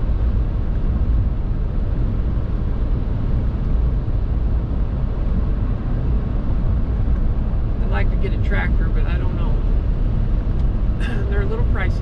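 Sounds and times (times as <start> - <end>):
vehicle engine and road rumble: 0.0 - 12.0.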